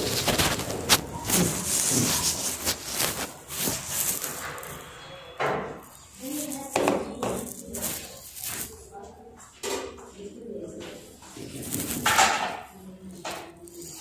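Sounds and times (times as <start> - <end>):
phone rubbing against clothing: 0.0 - 5.0, 5.9 - 9.0, 11.3 - 12.4, 13.1 - 14.0
muffled voices: 0.0 - 14.0.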